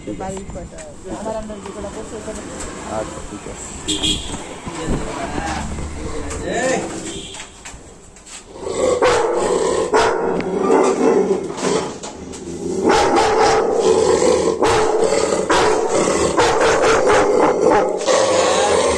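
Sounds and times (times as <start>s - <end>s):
dog growling: 8.5s - 18.9s
dog barking: 9.0s - 11.0s, 12.8s - 13.9s, 14.6s - 18.4s.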